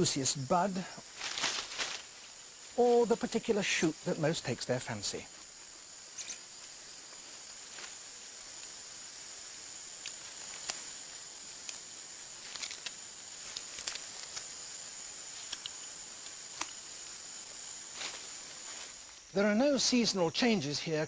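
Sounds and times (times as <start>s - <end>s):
high insect hiss: 0.0s - 21.0s
sharp clicks and chirps: 6.0s - 6.8s, 9.9s - 19.3s.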